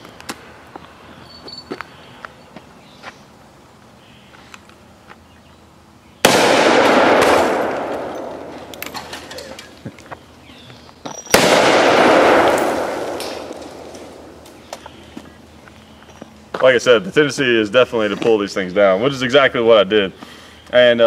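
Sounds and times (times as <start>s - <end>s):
revolver gunshots with echo: 6.2s - 9.0s, 11.3s - 14.4s.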